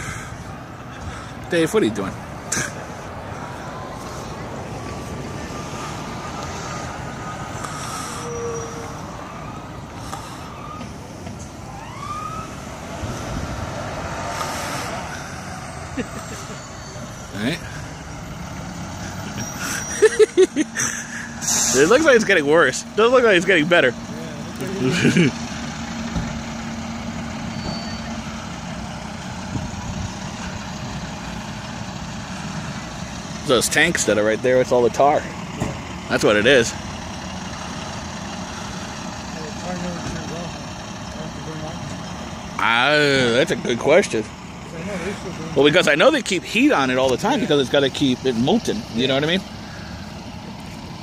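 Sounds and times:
engine and road noise: 0.0s - 51.0s
faint siren wail: 3.1s - 25.0s.

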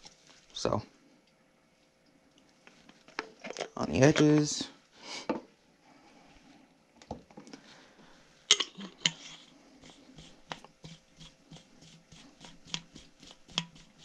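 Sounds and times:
fingers rubbing metal rim: 8.8s - 14.0s.

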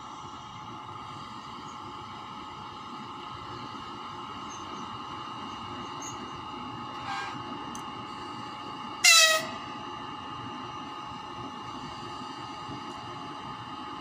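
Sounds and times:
locomotive electrical whine: 0.0s - 14.0s
locomotive horn blast: 7.0s - 7.4s, 9.0s - 9.7s.

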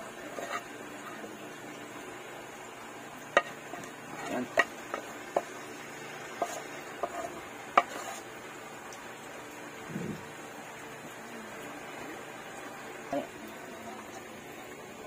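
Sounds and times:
faint steady hiss: 0.0s - 15.0s
utensil tapping ceramic plate: 3.3s - 5.6s, 6.4s - 8.2s.

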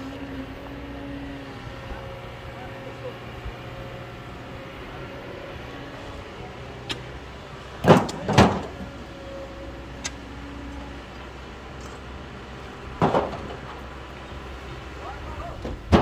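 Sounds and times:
diesel engine humming: 0.0s - 16.0s
stones clattering into metal trailer: 13.0s - 13.9s, 15.7s - 16.0s.

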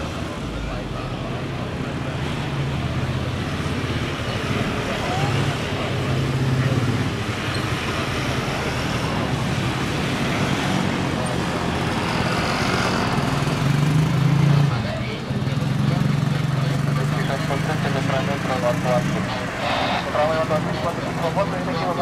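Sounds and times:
road traffic noise: 0.0s - 22.0s.

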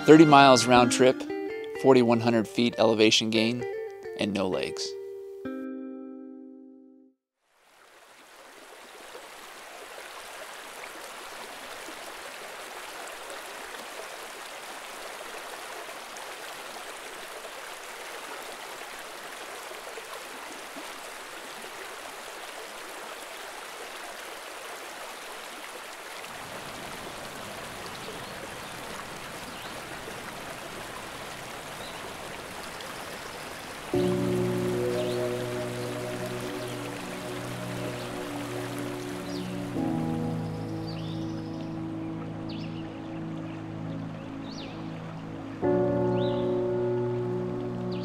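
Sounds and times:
stream rushing over rocks: 7.5s - 40.6s.

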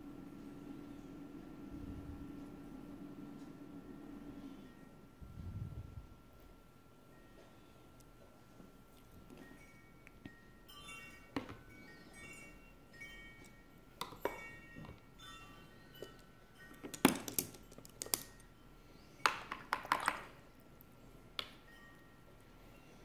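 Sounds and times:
soft chime-like music: 3.5s - 5.3s, 6.9s - 19.5s, 21.0s - 23.0s.

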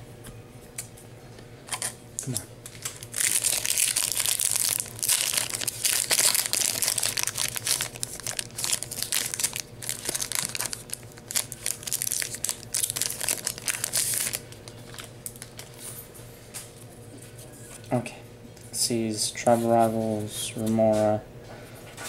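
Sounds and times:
foil wrapper crinkling and tearing: 1.7s - 15.9s.

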